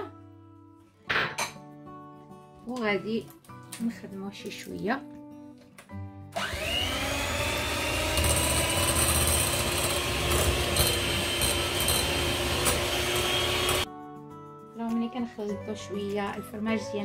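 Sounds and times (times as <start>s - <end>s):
electric hand mixer whine: 6.4s - 13.9s.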